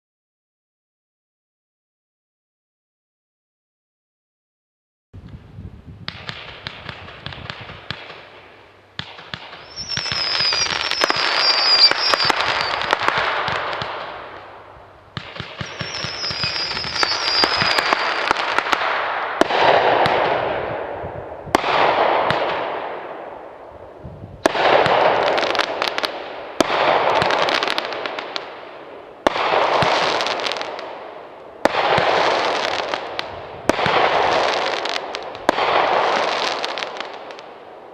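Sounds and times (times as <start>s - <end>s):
fireworks shots: 6.0s - 37.9s
crackling of bursting stars: 6.1s - 20.3s.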